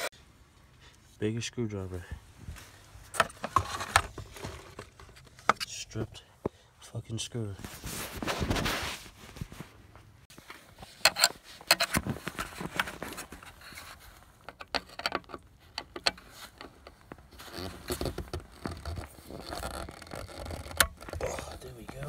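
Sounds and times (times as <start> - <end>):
screwdriver clicking and scraping: 11.0 - 12.0, 12.8 - 17.0.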